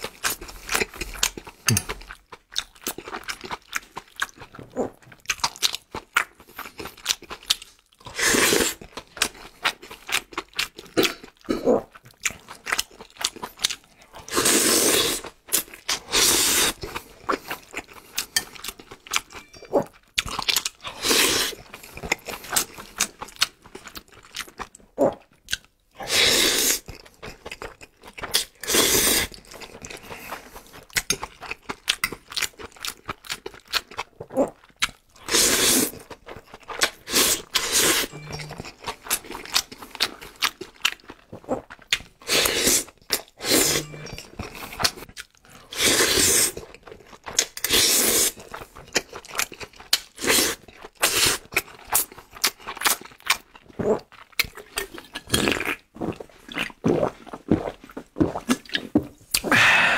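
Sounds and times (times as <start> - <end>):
wet chewing and lip smacking: 29.2 - 45.6, 48.3 - 59.5
sucking food in: 35.2 - 36.1, 41.4 - 45.0, 58.4 - 59.9.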